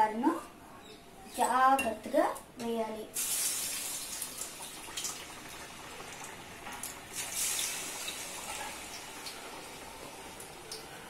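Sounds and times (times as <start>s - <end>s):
dough frying in hot oil: 3.2s - 11.0s.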